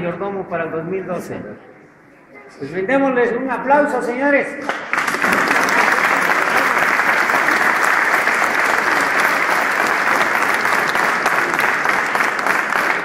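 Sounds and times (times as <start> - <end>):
crowd applauding in a hall: 4.6 - 13.0.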